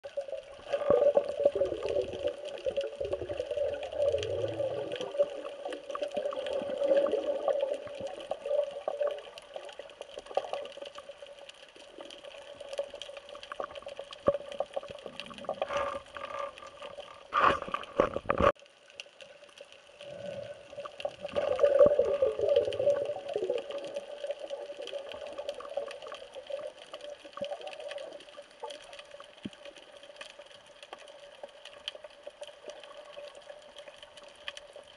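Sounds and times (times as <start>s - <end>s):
water rushing and bubbling: 0.0s - 34.9s.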